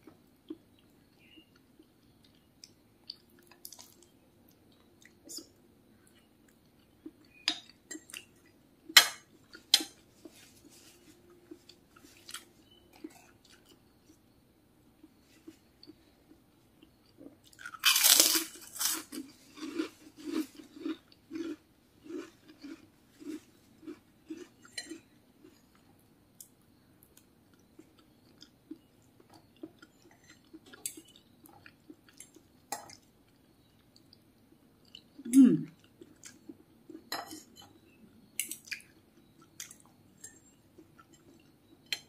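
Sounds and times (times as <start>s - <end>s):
cracker crunching: 17.5s - 25.0s.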